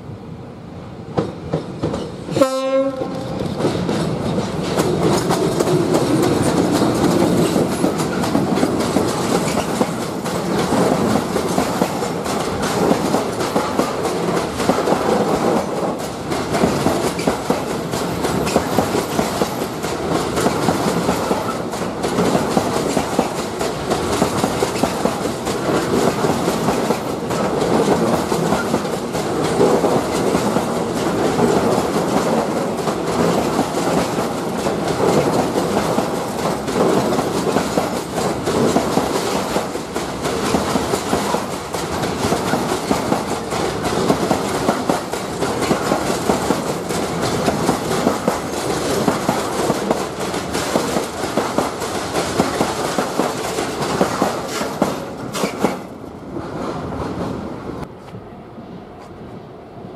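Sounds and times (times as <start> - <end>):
train wheels rolling on rail: 0.0 - 59.9
train horn blast: 2.3 - 3.4.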